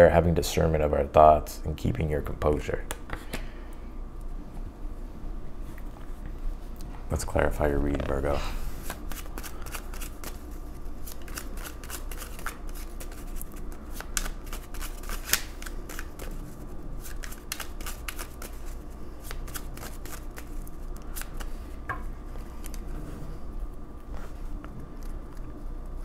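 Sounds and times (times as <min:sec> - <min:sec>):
cards being shuffled: 0:08.8 - 0:21.6.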